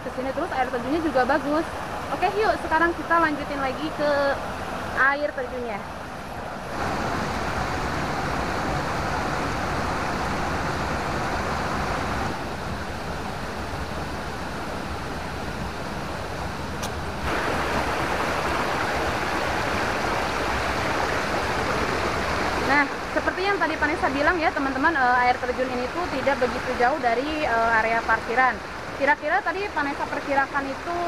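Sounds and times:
water rushing in rocky stream: 14.2 - 31.0.

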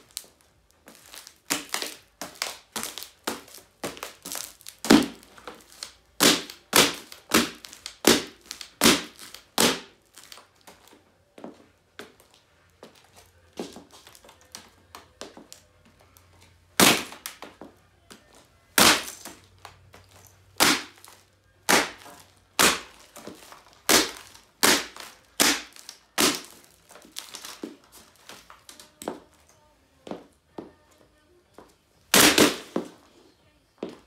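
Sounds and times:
plastic crunching: 0.0 - 11.0, 12.0 - 29.5, 32.0 - 33.0
sharp plastic cracks: 1.0 - 10.7, 16.8 - 17.5, 18.7 - 28.8, 32.1 - 32.8.

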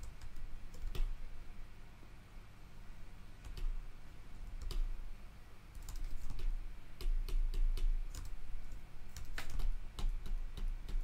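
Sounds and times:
keyboard and mouse clicks: 0.0 - 1.2, 3.4 - 3.8, 4.4 - 4.9, 5.8 - 11.0.

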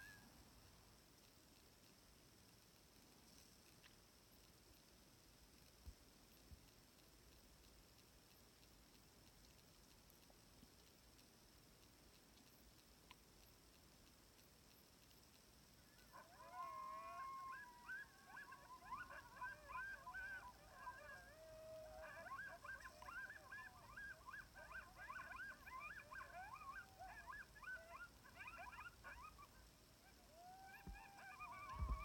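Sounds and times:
wolf yips: 15.9 - 32.0
wolves howling: 16.0 - 32.0.

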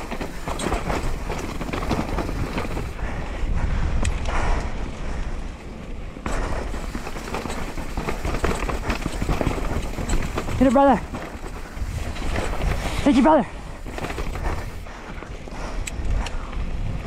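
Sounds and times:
bike chain and frame rattling: 0.0 - 3.2, 6.2 - 16.1
bike tyres on dirt and rock: 0.0 - 17.0
wind buffeting microphone: 0.0 - 17.0.

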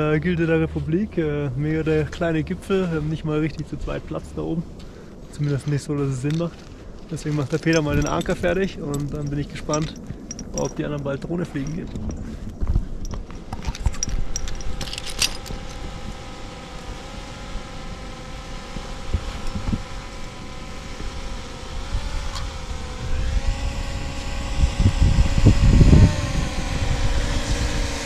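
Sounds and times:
wind rumbling on microphone: 0.0 - 28.0
drone propeller whine: 13.0 - 28.0.

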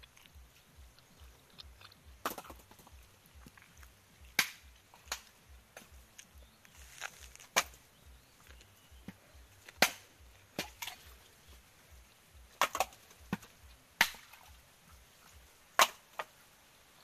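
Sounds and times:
machete chopping coconuts: 2.2 - 3.0, 4.3 - 6.2, 6.8 - 11.4, 12.4 - 14.5, 15.7 - 16.4.

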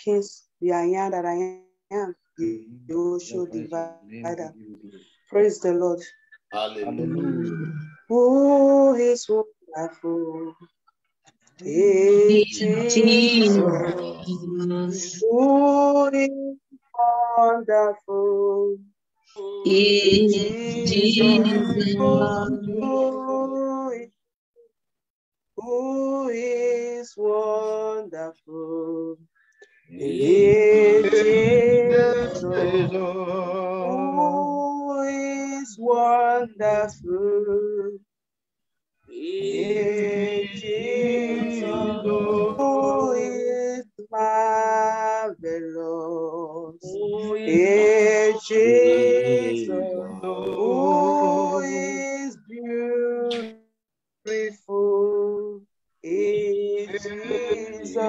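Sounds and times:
group singing without instruments: 2.4 - 5.2, 6.0 - 10.8, 11.5 - 18.8, 19.4 - 24.1, 25.6 - 38.0, 39.1 - 53.6, 54.3 - 58.0
woman singing worship song: 11.7 - 15.2, 19.4 - 23.3, 30.0 - 34.4, 39.4 - 43.6, 46.8 - 52.3, 56.4 - 58.0.

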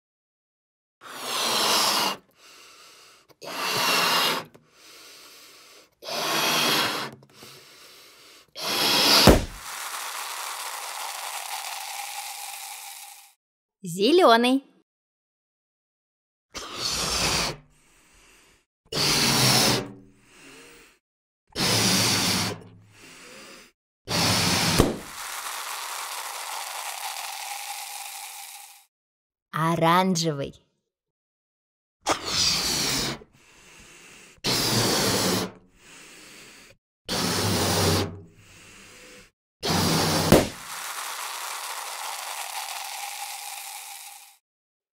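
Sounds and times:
puffs of breath blowing balloon: 1.0 - 13.4, 16.5 - 28.9, 32.1 - 44.4
balloon popping: 8.6 - 13.3, 24.1 - 28.8, 39.6 - 44.4
fizzing splatter of paint: 8.6 - 13.4, 24.2 - 28.9, 39.7 - 44.4.

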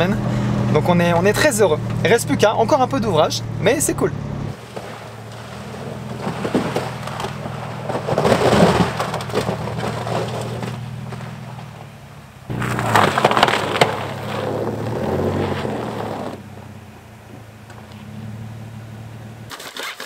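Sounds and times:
pickup truck engine running: 0.0 - 19.5
crunching and cracking: 4.6 - 11.9, 12.5 - 16.4.

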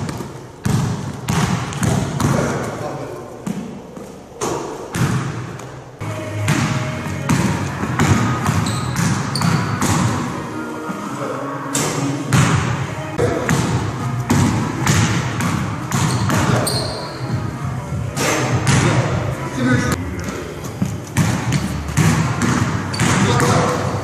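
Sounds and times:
basketball bouncing on gym floor: 0.0 - 2.8, 3.4 - 5.8, 6.5 - 10.2, 12.3 - 17.1, 20.2 - 24.0.

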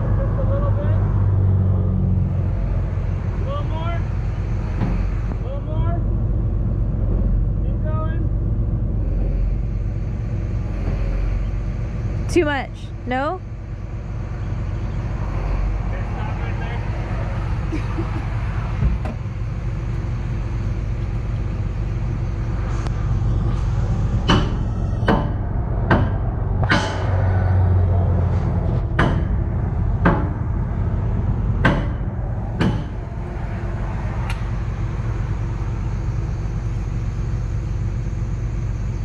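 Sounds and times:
diesel engine idling: 0.0 - 39.0
hammer clanking on metal: 24.2 - 27.6, 28.7 - 30.6, 31.6 - 33.0.

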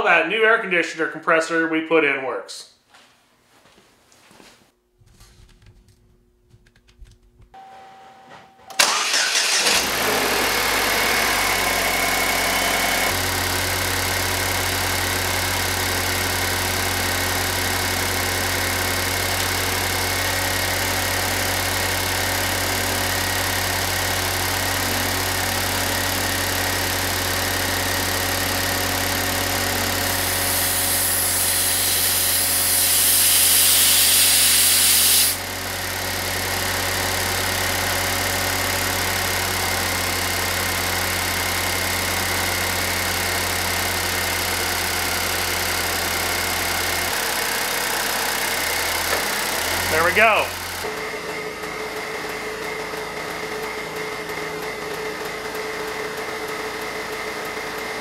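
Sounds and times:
car engine starting and idling: 8.7 - 31.5, 35.4 - 58.0
hiss: 30.2 - 35.4.

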